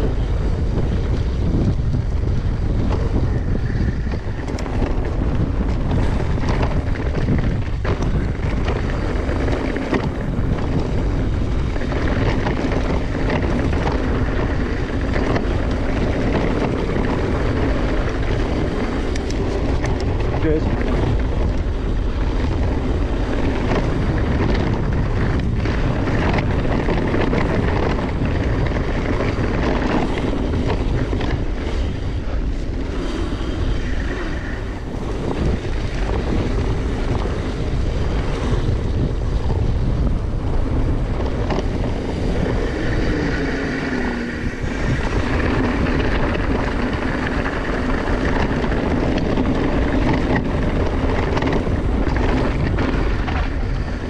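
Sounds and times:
bike knocks and rattles: 0.0 - 54.0
bike tyre noise: 0.0 - 54.0
wind on microphone: 0.0 - 54.0.

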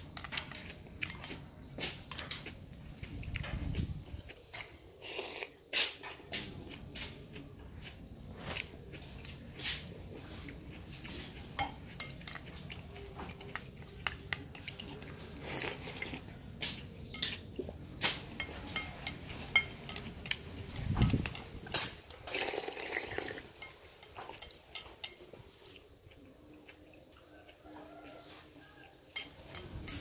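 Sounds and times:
utensils clinking on ceramic bowl: 0.0 - 2.5, 11.1 - 16.3, 17.0 - 25.8, 29.0 - 30.0.

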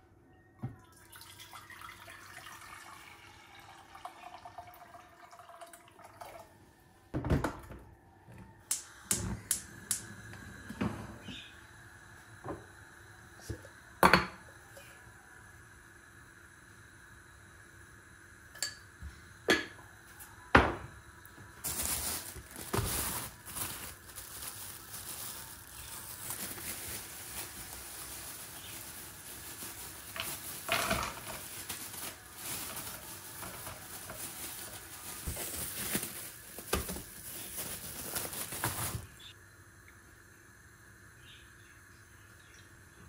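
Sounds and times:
plastic bag rustling: 21.5 - 39.3.

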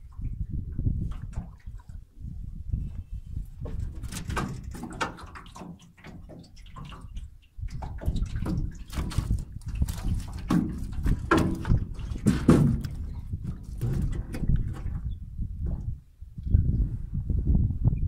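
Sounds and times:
water sloshing and dripping: 0.0 - 16.0
knocks on metal hull: 10.4 - 13.0.

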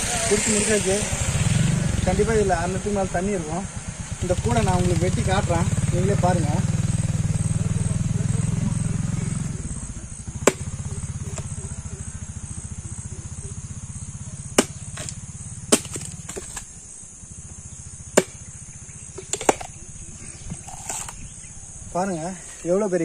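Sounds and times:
billhook chopping coconut: 10.3 - 11.6, 14.5 - 16.7, 18.1 - 18.5, 19.1 - 19.8.

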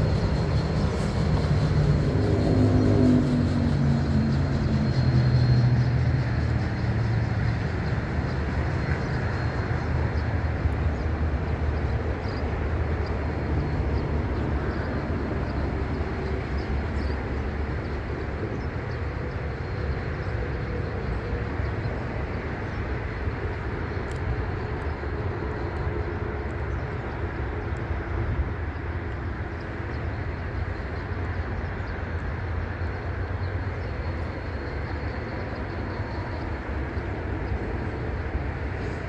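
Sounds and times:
diesel locomotive engine hum: 0.0 - 39.0.

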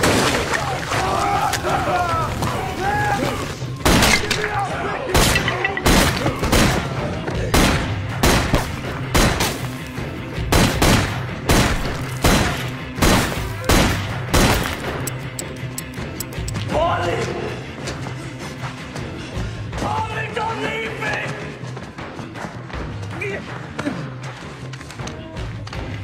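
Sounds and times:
loud gunshots: 3.8 - 9.8, 10.4 - 15.0.

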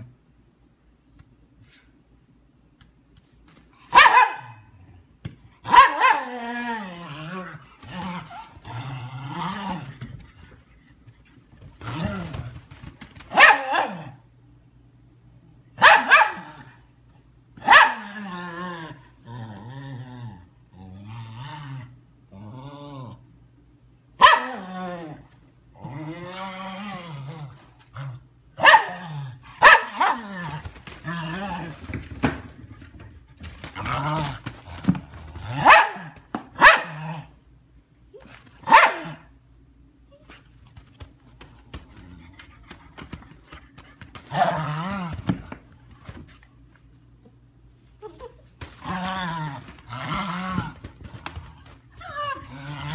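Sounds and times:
dogs play barking: 3.8 - 10.5, 11.6 - 14.2, 15.8 - 16.8, 17.6 - 18.4, 24.2 - 24.9, 28.6 - 37.3, 38.3 - 39.4, 40.2 - 45.6
puppy barking high-pitched: 3.9 - 4.7, 5.6 - 6.3, 13.3 - 14.1, 15.8 - 16.6, 17.6 - 18.1, 24.2 - 24.6, 28.6 - 29.0, 29.6 - 30.2, 35.6 - 37.0, 38.6 - 39.3
dog growling: 6.3 - 10.1, 18.0 - 23.2, 25.8 - 28.3, 44.3 - 45.4, 48.7 - 52.9.

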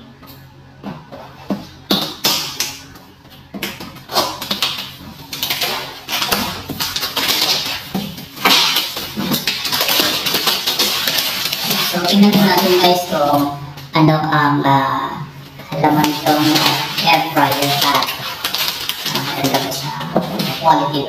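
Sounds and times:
cardboard and plastic crackling: 3.4 - 13.4, 15.7 - 21.0.

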